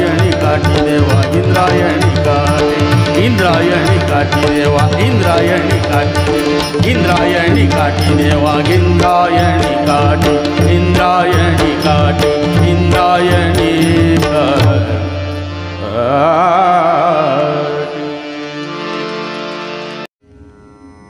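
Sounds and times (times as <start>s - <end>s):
tabla beat: 0.0s - 16.4s
man singing: 0.0s - 19.1s
tanpura drone: 0.0s - 21.0s.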